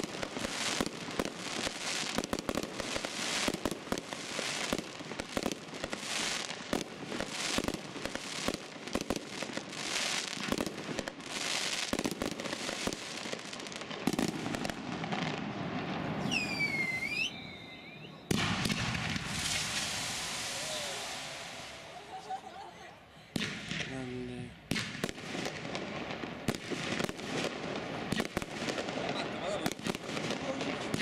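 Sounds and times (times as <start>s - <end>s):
fireworks bangs and crackling: 0.0s - 22.6s, 23.3s - 31.0s
falling then rising whistle: 16.2s - 21.5s.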